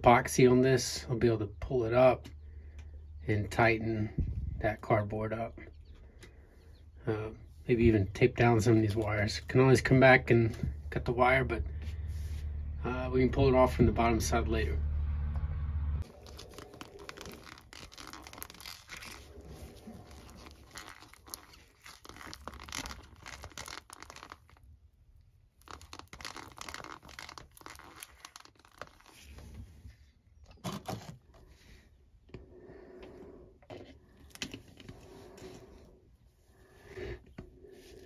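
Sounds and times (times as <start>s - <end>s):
plastic cup crinkling: 8.4s - 9.9s, 16.0s - 29.6s, 30.5s - 31.6s, 33.7s - 35.8s
stick scraping plastic cup: 16.1s - 24.7s, 25.6s - 29.6s.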